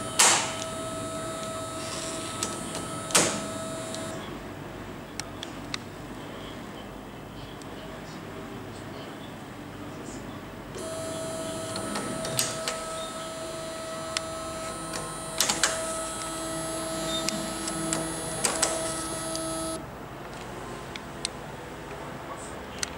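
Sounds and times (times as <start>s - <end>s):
electric motor whining: 0.0s - 4.2s, 10.8s - 19.8s.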